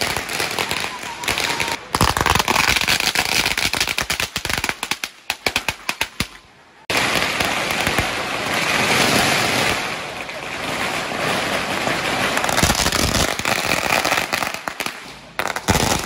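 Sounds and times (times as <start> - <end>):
firecrackers crackling: 0.0 - 16.0.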